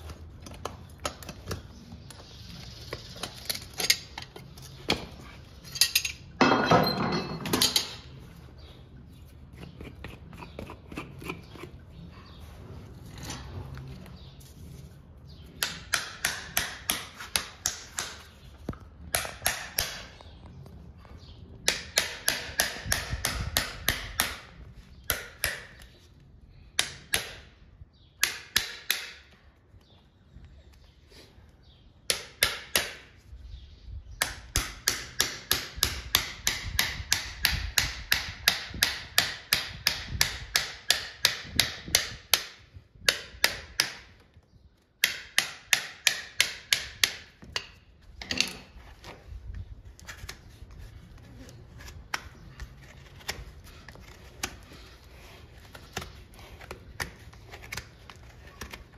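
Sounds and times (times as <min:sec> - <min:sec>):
hammer striking horseshoe on anvil: 0:21.7 - 0:24.5, 0:45.0 - 0:47.8.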